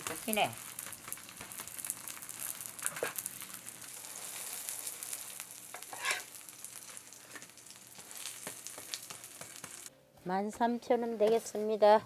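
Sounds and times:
pancakes sizzling in oil: 0.0s - 9.9s
spatula scraping a pan: 2.8s - 9.9s.

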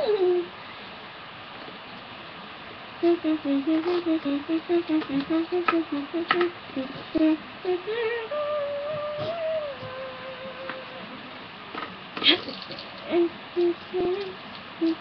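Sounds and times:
person humming: 0.0s - 0.5s, 3.0s - 11.2s, 13.0s - 15.0s.

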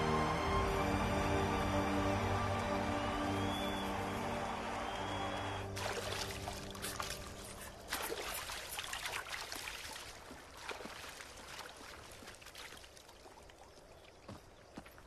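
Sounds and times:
background music: 0.0s - 8.4s
river water splashing: 0.0s - 15.0s.

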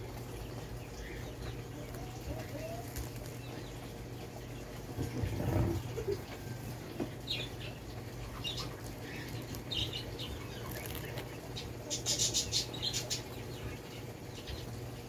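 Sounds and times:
fruit husk crackling and ripping: 2.8s - 3.6s, 9.3s - 11.6s.

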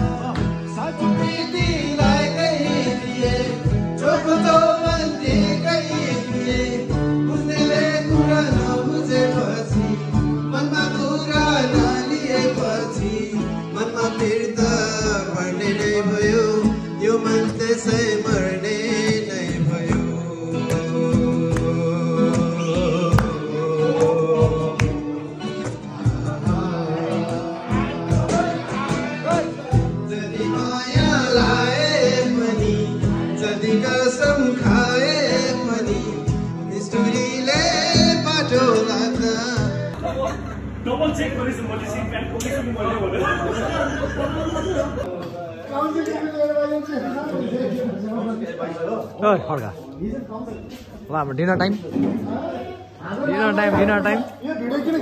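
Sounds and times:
men singing together: 0.0s - 40.8s
guitar playing: 0.0s - 45.4s.

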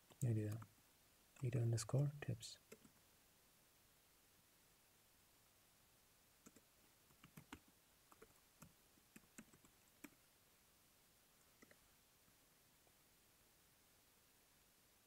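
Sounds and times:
keyboard typing: 0.5s - 0.7s, 2.7s - 3.0s, 6.4s - 10.2s.

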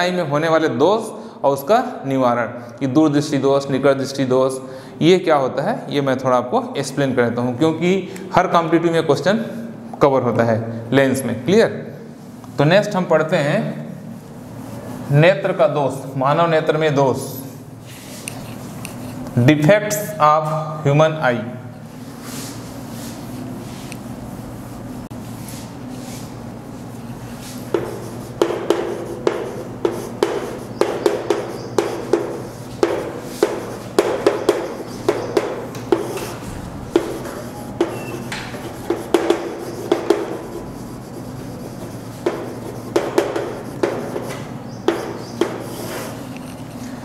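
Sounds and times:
steady low hum: 0.0s - 47.0s
chalk tapping and scraping: 17.9s - 19.4s, 22.2s - 47.0s.

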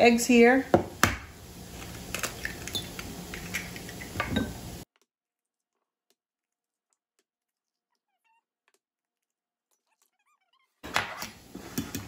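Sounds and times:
eggs cracking against glass: 1.8s - 4.2s.

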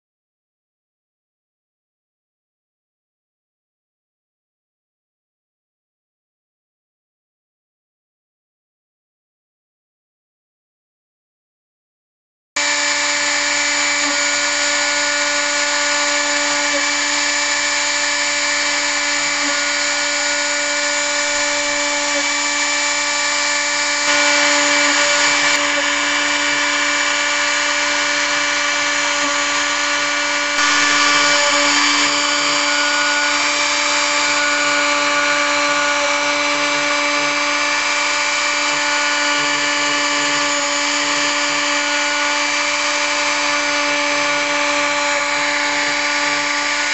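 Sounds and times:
hiss of bit cutting wood: 12.6s - 46.9s
router spindle whine: 12.6s - 46.9s.

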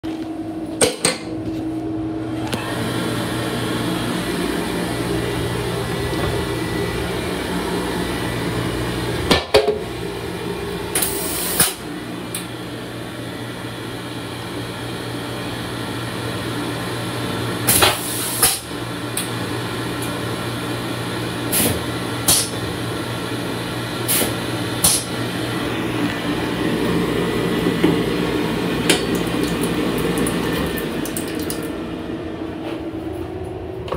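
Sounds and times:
hand dryer blowing: 2.4s - 16.0s.

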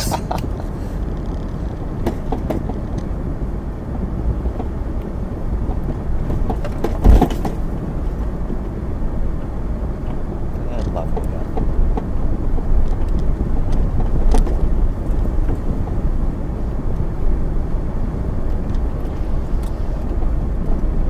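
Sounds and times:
engine and tyre rumble: 0.0s - 21.0s
knocks and rattles: 5.6s - 7.8s
loud thump: 6.8s - 7.6s.

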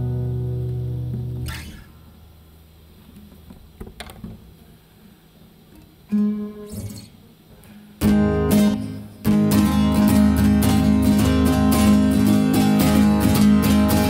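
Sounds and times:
acoustic guitar strumming: 0.0s - 2.1s, 6.1s - 7.2s, 8.0s - 14.0s.

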